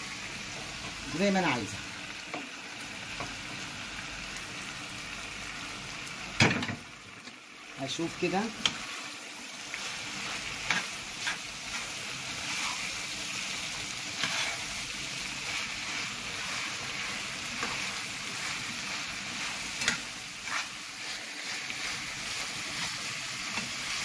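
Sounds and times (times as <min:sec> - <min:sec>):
food sizzling in a frying pan: 0:00.0 - 0:24.0
metal spoon scraping a pan: 0:09.8 - 0:13.0, 0:14.1 - 0:24.0.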